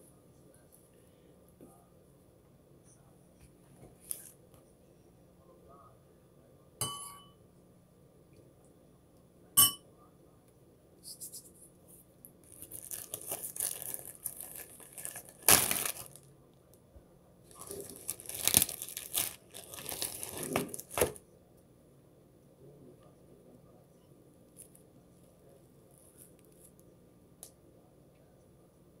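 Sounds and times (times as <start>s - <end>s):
plastic wrapping crinkling and tearing: 12.4s - 16.3s, 17.5s - 21.2s.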